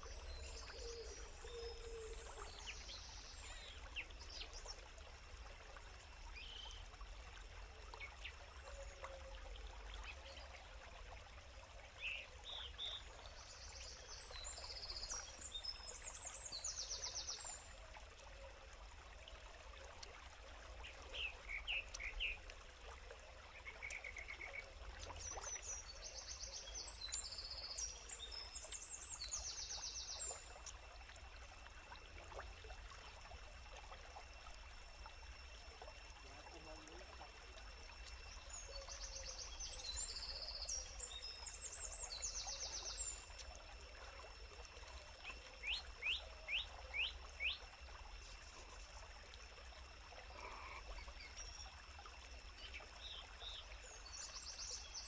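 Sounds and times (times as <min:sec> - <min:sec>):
stream water rushing: 0:41.5 - 0:54.2.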